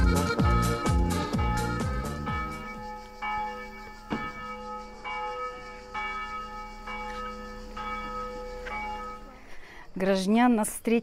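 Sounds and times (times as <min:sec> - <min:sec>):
church bell tolling: 0:01.2 - 0:09.5.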